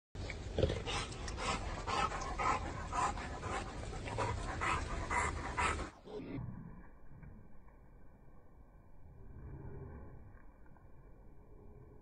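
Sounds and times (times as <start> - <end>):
dog panting: 0.8 - 6.0.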